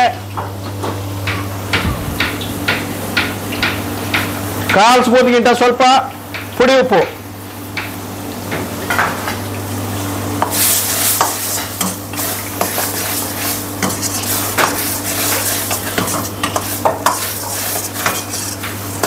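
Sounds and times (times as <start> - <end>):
bubbling gravy sizzling: 8.3 - 19.0
ladle scraping and clinking pan: 10.5 - 19.0.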